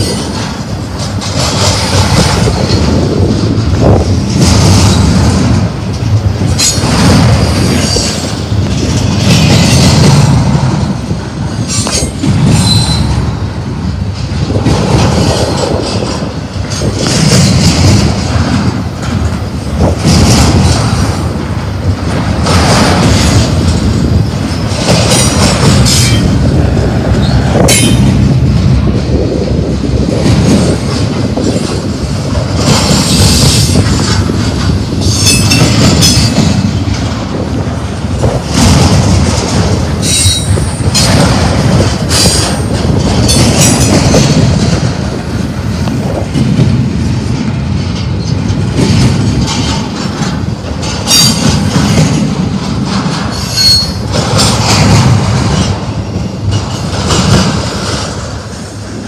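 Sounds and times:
freight train wheels rumbling: 0.0s - 59.0s
high-pitched wheel squeal: 12.5s - 13.1s, 53.3s - 54.0s.

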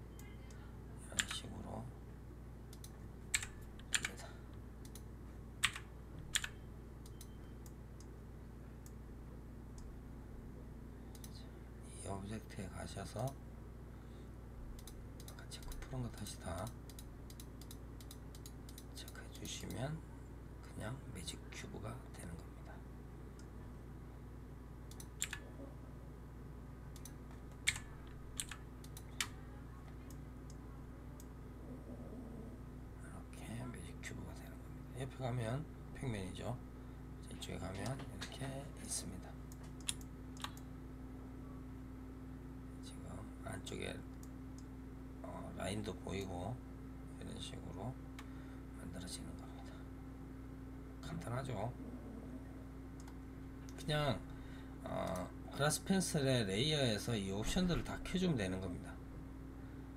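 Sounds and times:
faint low hum: 0.0s - 59.9s
keyboard and mouse clicks: 1.2s - 1.4s, 2.7s - 4.2s, 4.8s - 8.1s, 24.9s - 25.5s, 26.9s - 29.4s, 39.5s - 40.6s.

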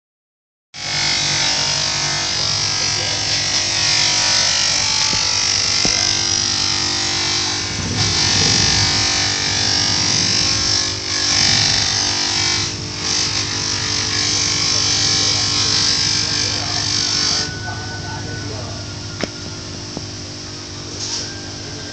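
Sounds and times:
bench grinder motor hum: 0.8s - 17.7s
metal grinding hiss: 0.8s - 21.9s.

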